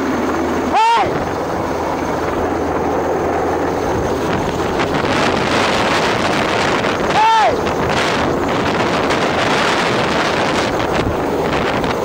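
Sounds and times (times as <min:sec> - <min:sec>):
helicopter drone: 0:00.0 - 0:12.0
rotor downwash wind noise: 0:00.0 - 0:12.0.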